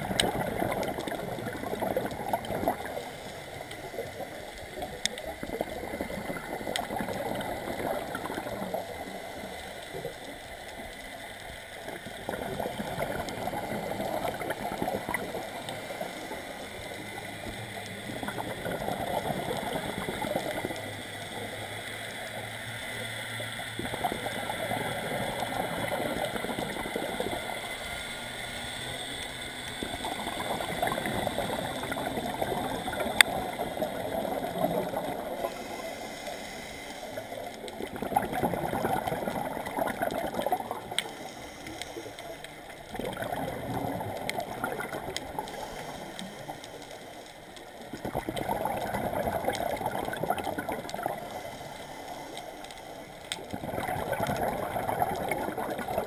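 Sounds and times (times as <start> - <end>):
bubbling regulator exhalations: 0.0 - 10.2, 11.8 - 16.4, 17.0 - 20.8, 23.8 - 27.6, 29.8 - 36.0, 37.2 - 46.8, 47.9 - 56.0
regulator inhalations: 41.0 - 42.4.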